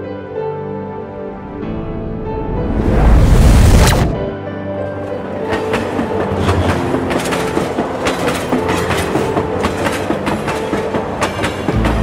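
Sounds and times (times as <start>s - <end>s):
train rumble: 5.3s - 12.0s
train wheels clattering over rail joints: 5.6s - 12.0s.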